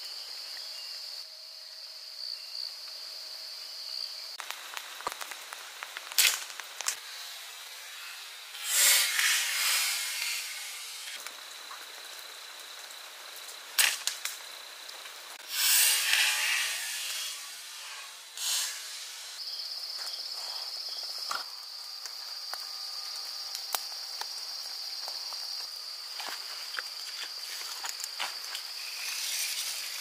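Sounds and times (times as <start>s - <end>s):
insects trilling: 0.0s - 30.0s
pulsing insect trill: 6.2s - 12.9s, 15.4s - 30.0s.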